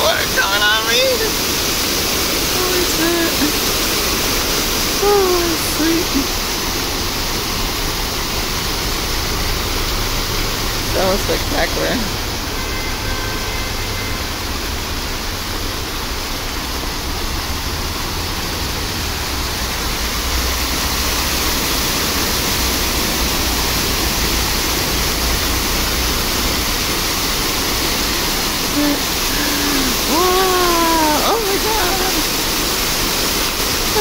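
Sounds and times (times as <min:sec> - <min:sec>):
fountain water splashing: 0:00.0 - 0:34.0.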